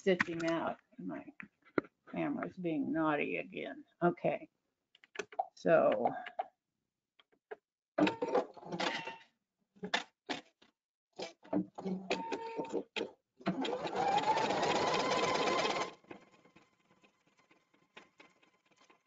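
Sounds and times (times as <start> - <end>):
rapid machine stitching: 13.5 - 16.4.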